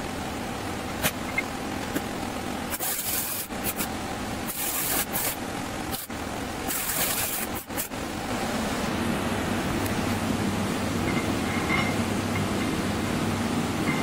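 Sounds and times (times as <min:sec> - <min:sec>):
steady low hum: 0:00.0 - 0:14.0
arc welding hiss: 0:02.6 - 0:08.2.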